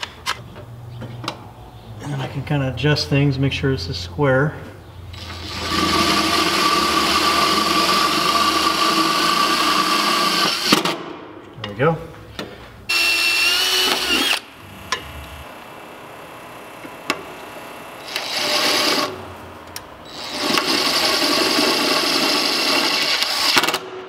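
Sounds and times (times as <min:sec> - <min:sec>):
cordless drill driving screws: 0:05.2 - 0:10.8, 0:12.9 - 0:15.2, 0:18.0 - 0:19.2, 0:20.1 - 0:23.6.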